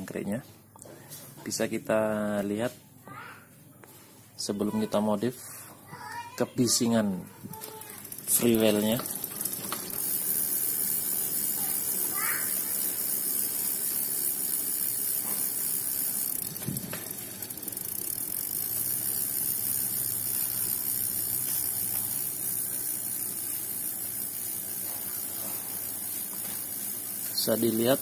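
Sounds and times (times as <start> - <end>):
bicycle freewheel ticking: 6.7 - 28.0.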